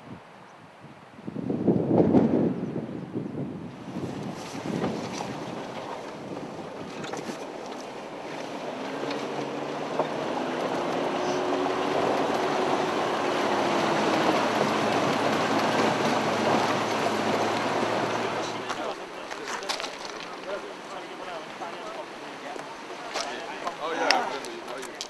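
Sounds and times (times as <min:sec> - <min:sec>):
low engine hum: 0:03.6 - 0:25.0
water splashing around wheels: 0:03.7 - 0:25.0.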